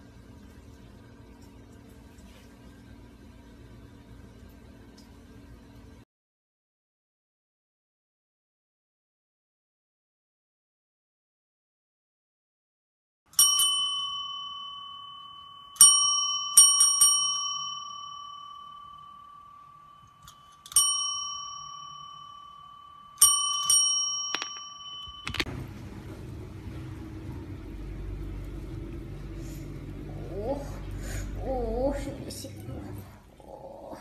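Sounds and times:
low steady hum: 0.0 - 6.0, 13.6 - 34.0
desk service bell dinging: 13.4 - 25.5.

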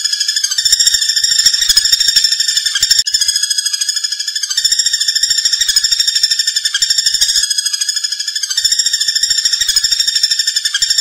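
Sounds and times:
woodpecker rattling trill: 0.0 - 11.0.

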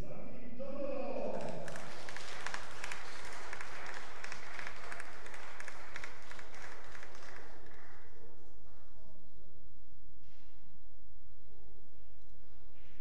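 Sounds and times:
audience applauding: 1.3 - 8.2.

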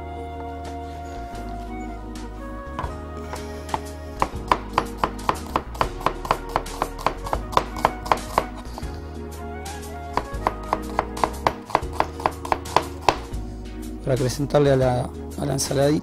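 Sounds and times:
soft background music: 0.0 - 16.0
knife slicing onion on cutting board: 3.3 - 8.9, 10.2 - 13.3.

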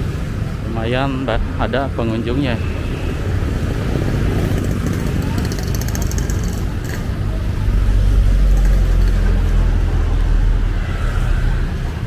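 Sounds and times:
vehicle engine rumble passing: 2.4 - 12.0.

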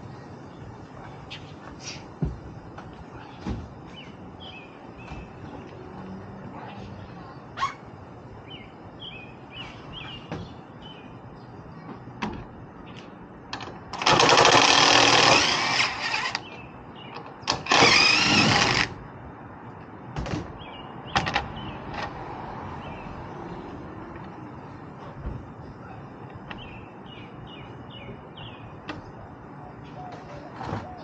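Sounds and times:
cordless power driver running: 14.0 - 16.4, 17.5 - 18.9.

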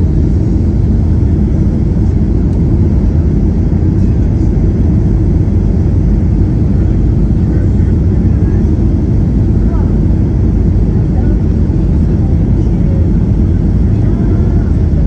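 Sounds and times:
aircraft cabin low rumble: 0.0 - 15.0.

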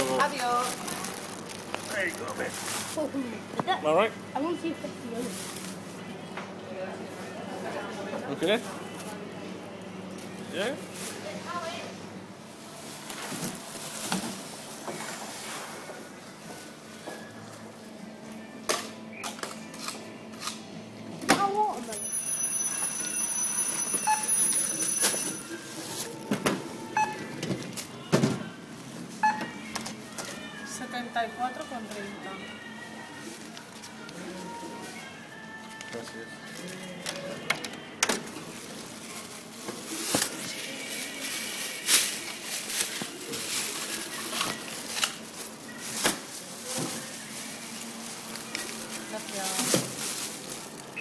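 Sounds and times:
plastic bags rustling: 0.0 - 3.4, 12.7 - 15.8, 24.6 - 26.9, 38.4 - 51.0
knocks and clicks of groceries: 13.0 - 20.6, 21.2 - 30.5, 35.6 - 51.0
checkout scanner beeps: 21.9 - 27.4, 29.2 - 29.6.

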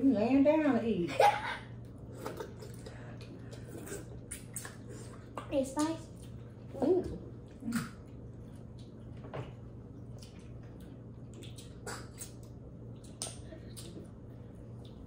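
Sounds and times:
low steady hum: 0.0 - 15.0
wet eating smacks: 1.8 - 6.6, 9.8 - 15.0.

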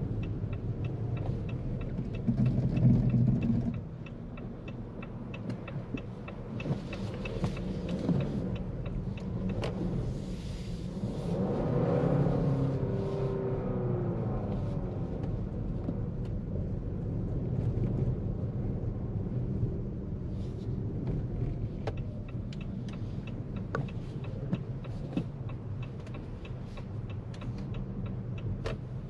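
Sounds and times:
sharp ticks and clicks: 0.0 - 10.0, 21.8 - 29.0
car tyres rumbling through snow: 2.0 - 3.8, 6.7 - 16.2.

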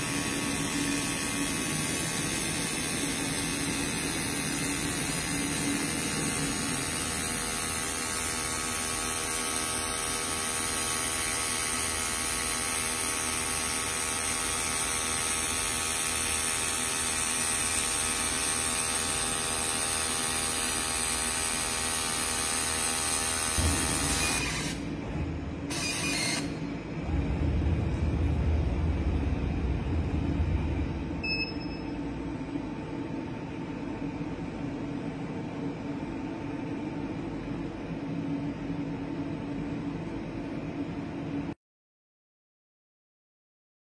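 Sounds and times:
machine humming with high hiss: 0.0 - 41.6
low rumble: 26.6 - 32.9.

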